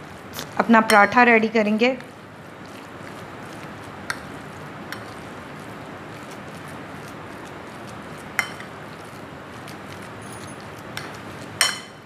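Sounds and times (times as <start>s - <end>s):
spoon stirring mince in bowl: 0.1s - 12.0s
spoon clinking against bowl: 8.4s - 8.7s, 10.2s - 12.0s.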